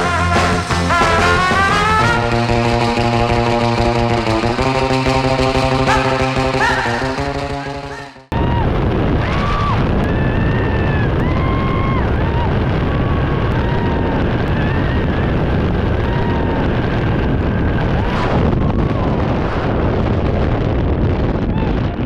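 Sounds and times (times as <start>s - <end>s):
freefall wind buffeting microphone: 8.3s - 22.0s.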